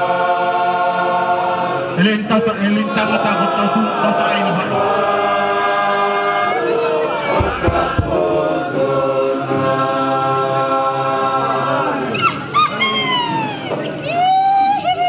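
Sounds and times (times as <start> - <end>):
group singing unaccompanied: 0.0 - 12.8
short high cries: 12.1 - 15.0.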